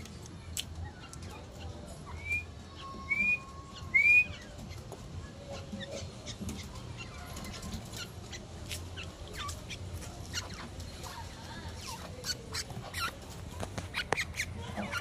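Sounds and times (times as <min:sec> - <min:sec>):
bird whistled notes: 0:02.1 - 0:04.5.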